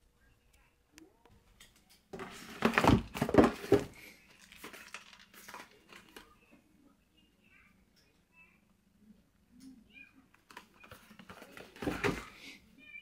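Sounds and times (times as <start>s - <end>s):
cardboard box rustling: 2.2s - 6.0s.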